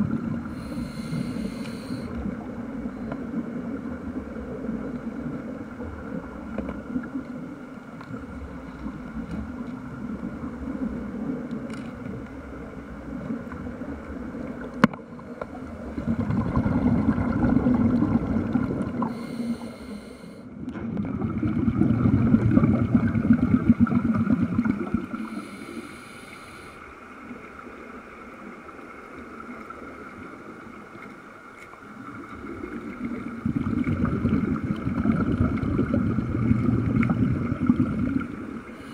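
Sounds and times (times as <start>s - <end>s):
steady hum: 0.0s - 11.5s
underwater air bubbling: 0.0s - 38.9s.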